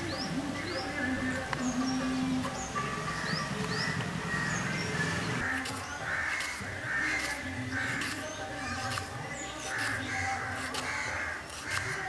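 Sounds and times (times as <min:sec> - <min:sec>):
crows cawing: 0:02.8 - 0:12.0
knife slicing on wooden board: 0:07.2 - 0:12.0.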